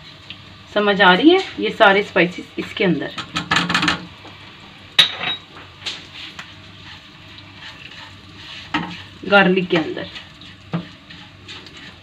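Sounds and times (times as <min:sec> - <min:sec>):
garlic frying: 0:00.0 - 0:12.0
spatula scraping frying pan: 0:05.8 - 0:12.0.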